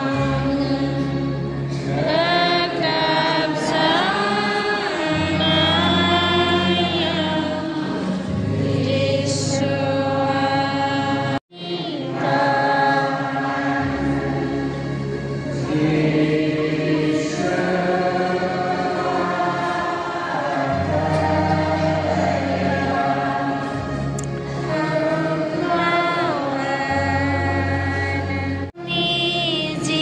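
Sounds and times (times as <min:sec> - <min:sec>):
group singing a hymn: 0:00.0 - 0:30.0.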